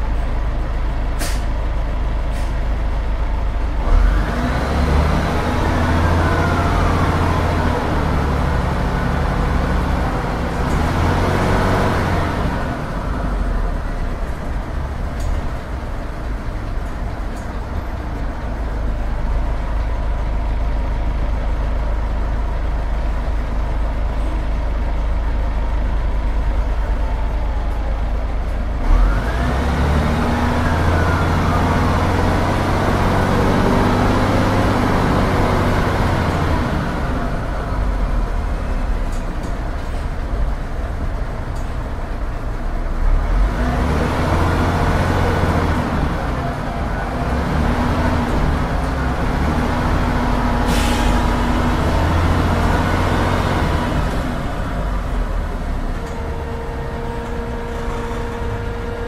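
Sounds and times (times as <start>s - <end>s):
diesel bus engine accelerating: 0.0s - 59.0s
engine whine: 0.0s - 59.0s
air hiss: 50.6s - 51.3s.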